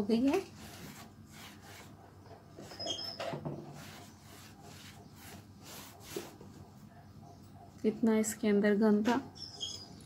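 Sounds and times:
cloth rubbing on sewing machine: 0.5 - 2.0, 3.7 - 6.7.

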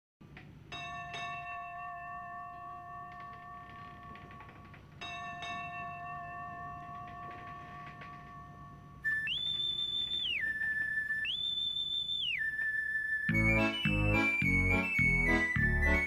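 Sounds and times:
bell-like chime tones: 0.7 - 4.4, 5.0 - 9.0
shrill swooping whistle: 9.0 - 16.0.

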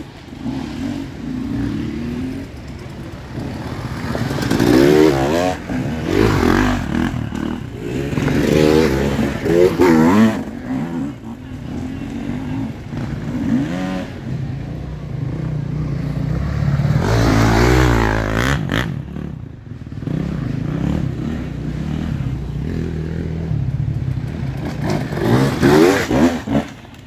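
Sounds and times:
dirt bike engines revving: 0.0 - 27.0.

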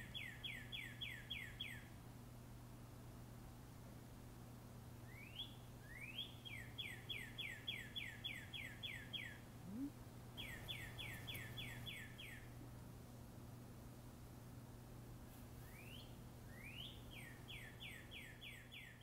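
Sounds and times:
songbird whistling song: 0.0 - 1.9, 5.0 - 12.5, 15.6 - 19.0
faint low hum: 0.0 - 19.0.

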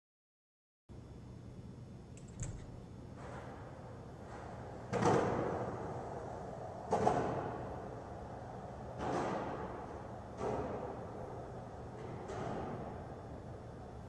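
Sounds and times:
small click: 2.2 - 2.8
skateboard wheels rolling: 3.2 - 13.9.

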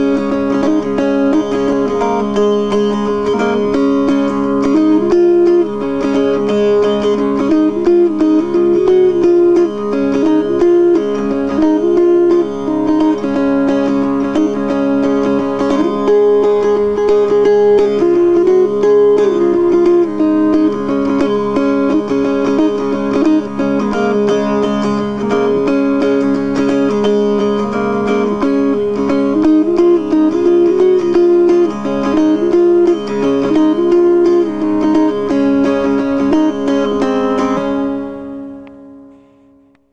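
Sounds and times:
plucked string music: 0.0 - 39.9.

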